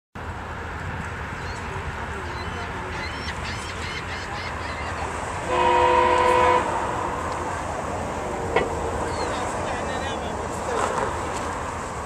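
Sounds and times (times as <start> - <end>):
train air horn blast: 5.4 - 7.2.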